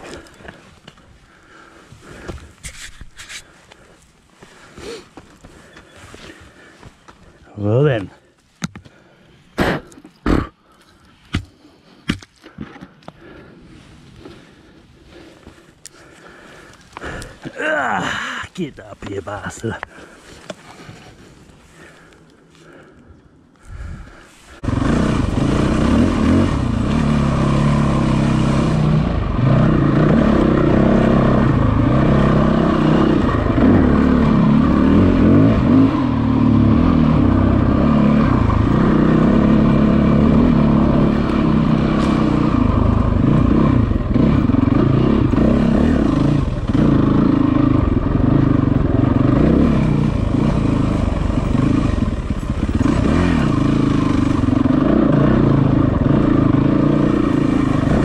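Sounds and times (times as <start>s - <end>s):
motorcycle engine revving: 24.5s - 58.0s.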